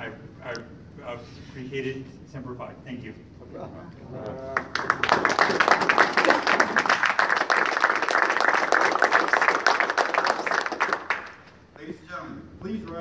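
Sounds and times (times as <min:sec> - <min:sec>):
audience applauding: 0:04.4 - 0:11.5.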